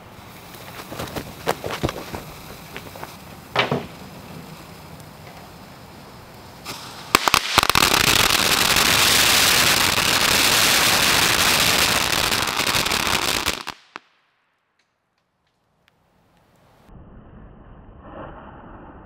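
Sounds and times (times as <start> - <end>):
firecrackers exploding: 6.6 - 14.2.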